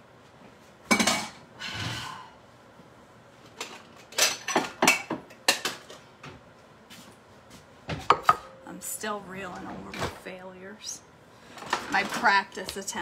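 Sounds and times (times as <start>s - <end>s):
dishes clinking and knocking: 0.9s - 1.4s, 3.6s - 6.0s, 7.9s - 8.6s.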